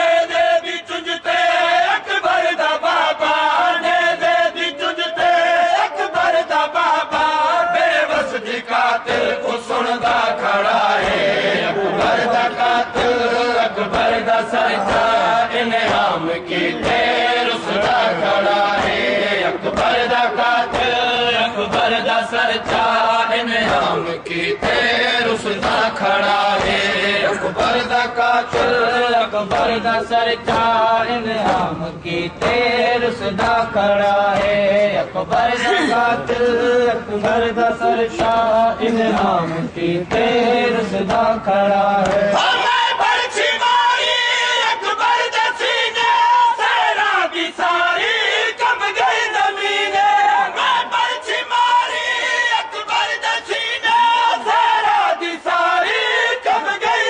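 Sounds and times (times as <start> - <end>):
men chanting a lament: 0.0 - 57.0
chest-beating slaps: 42.0 - 42.4.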